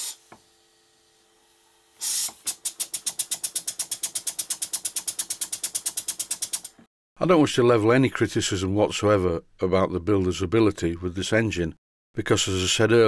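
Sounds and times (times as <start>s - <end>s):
air hiss: 0.0s - 0.4s, 2.0s - 2.8s
model steam engine puffing: 2.0s - 2.9s.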